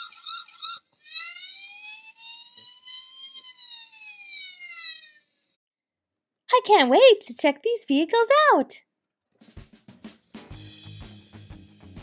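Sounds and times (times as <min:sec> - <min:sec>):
toy siren wailing: 0:00.0 - 0:05.6.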